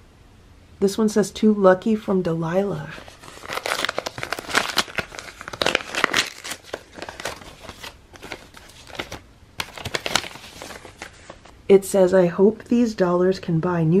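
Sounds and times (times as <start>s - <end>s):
paper crinkling and rustling: 2.9s - 11.6s
paper envelope tearing: 3.0s - 11.5s.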